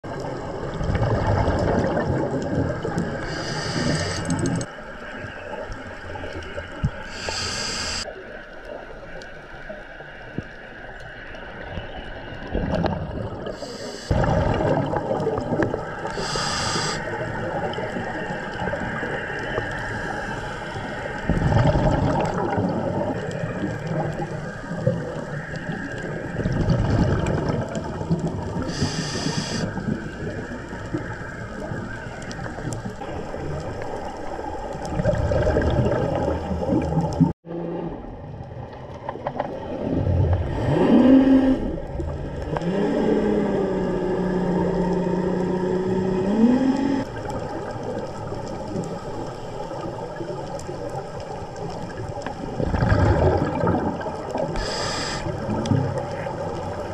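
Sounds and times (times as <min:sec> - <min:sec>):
gurgling exhaust bubbles: 0:00.0 - 0:04.7, 0:12.4 - 0:20.2, 0:21.2 - 0:37.7, 0:39.1 - 0:56.9
regulator inhalation hiss: 0:03.2 - 0:04.6, 0:07.0 - 0:08.1, 0:13.6 - 0:14.2, 0:16.1 - 0:17.2, 0:28.6 - 0:29.8, 0:54.6 - 0:55.4.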